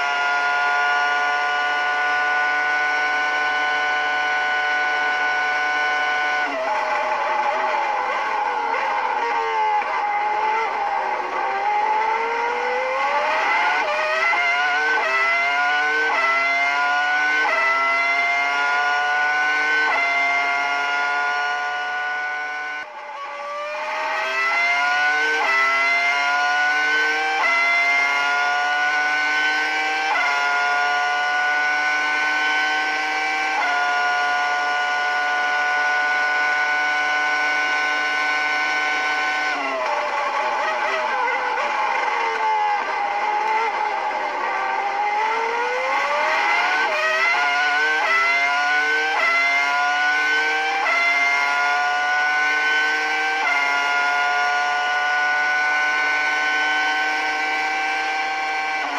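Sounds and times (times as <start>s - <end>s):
racing car engine revving: 0.0s - 58.9s
gear upshifts: 2.0s - 21.6s, 35.4s - 54.7s.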